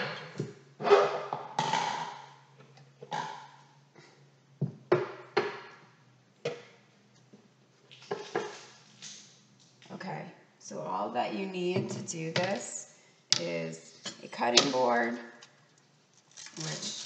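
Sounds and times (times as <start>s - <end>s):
kitchen items knocking and clattering: 4.6s - 5.8s
rustling: 15.4s - 17.0s.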